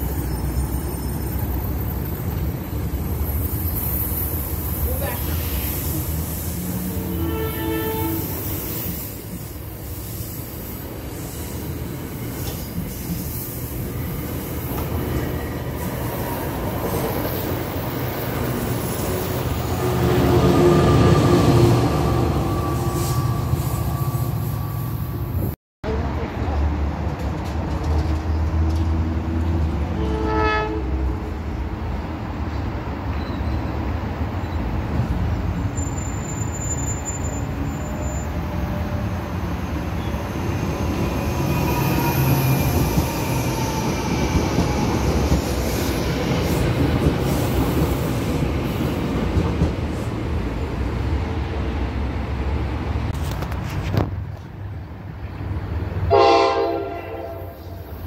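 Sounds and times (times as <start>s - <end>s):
train wheels rumbling on rails: 0.0s - 30.1s, 32.4s - 58.0s
train horn: 6.8s - 8.6s, 29.9s - 31.2s, 56.1s - 57.8s.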